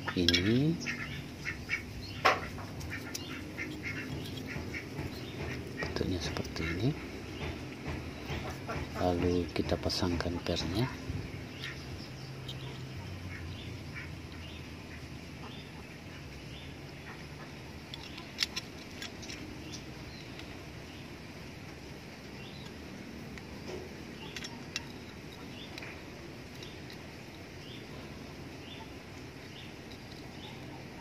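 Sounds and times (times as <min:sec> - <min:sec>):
small metal clicks and taps: 0:17.9 - 0:20.6, 0:22.6 - 0:27.4.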